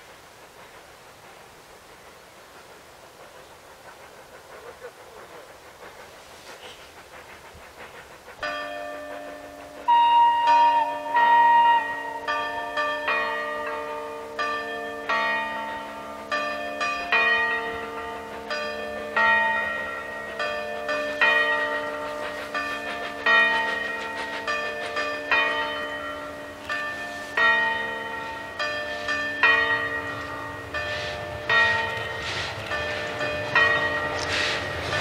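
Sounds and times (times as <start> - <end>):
bells ringing: 8.4 - 35.0.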